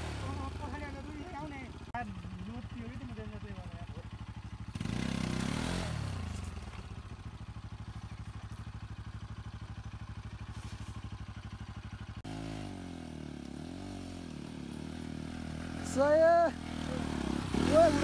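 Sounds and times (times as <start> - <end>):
motorcycle engine revving: 0.0 - 18.0
motorcycle engine pitch rising and falling: 4.1 - 7.2, 10.3 - 18.0.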